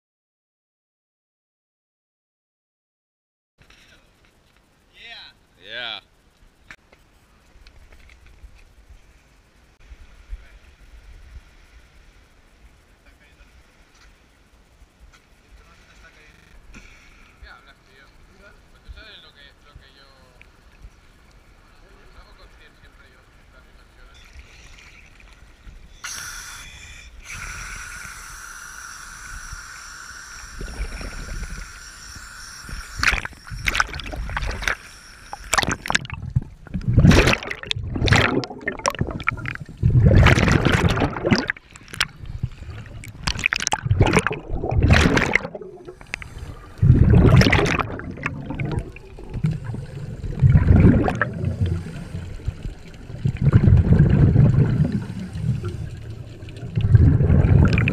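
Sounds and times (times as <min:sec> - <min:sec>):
underwater bubbles gurgling: 0:30.4 - 0:57.9
water sloshing: 0:35.4 - 0:57.9.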